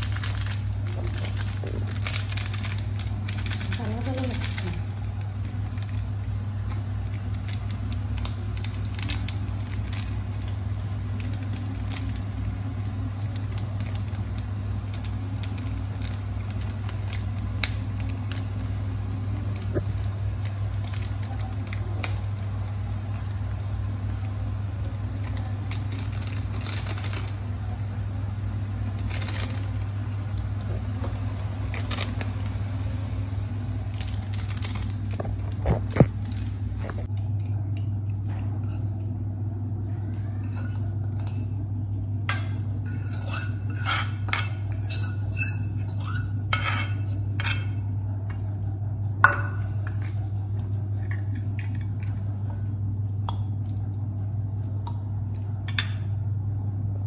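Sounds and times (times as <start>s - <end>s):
sachet tearing and crinkling: 0.0s - 6.3s, 6.9s - 22.6s, 25.0s - 27.6s, 28.8s - 30.1s, 31.6s - 32.6s, 33.8s - 37.1s
induction cooktop humming: 0.0s - 57.0s.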